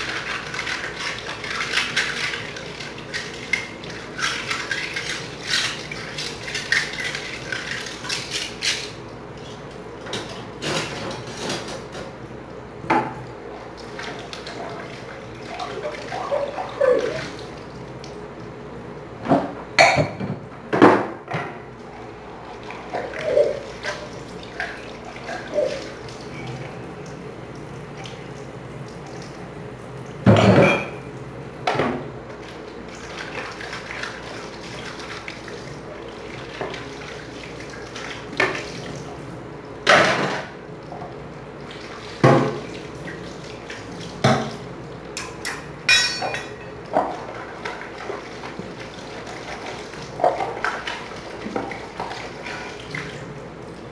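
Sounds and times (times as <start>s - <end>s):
running water: 0.0s - 11.2s, 13.0s - 18.6s, 21.8s - 31.1s, 32.2s - 53.9s
dishes clattering in sink: 10.0s - 12.2s, 12.9s - 13.2s, 19.2s - 21.7s, 30.2s - 32.1s, 39.8s - 40.6s, 42.2s - 42.7s, 44.2s - 44.6s, 45.2s - 48.8s.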